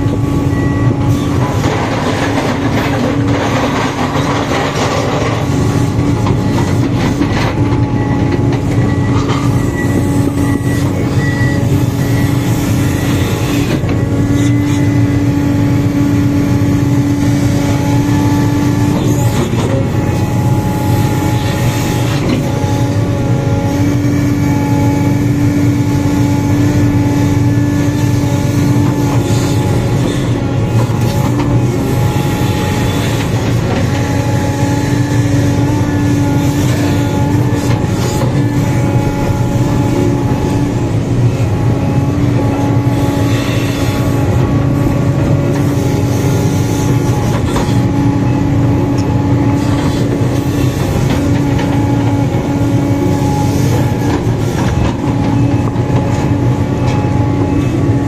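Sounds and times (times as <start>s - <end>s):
excavator diesel engine under load: 0.0s - 58.0s
hydraulic whine: 0.0s - 58.0s.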